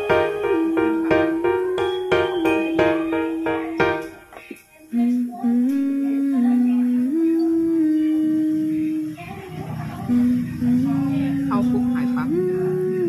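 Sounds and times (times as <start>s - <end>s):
plucked or chimed notes: 0.0s - 4.3s
slow melody of long held notes: 0.0s - 9.2s, 10.1s - 13.0s.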